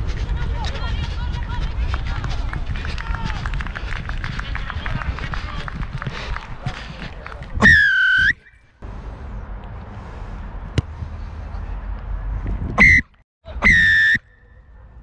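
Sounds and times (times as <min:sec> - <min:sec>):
wind rumble: 0:00.0 - 0:07.6
referee's whistle blasts: 0:12.8 - 0:14.4.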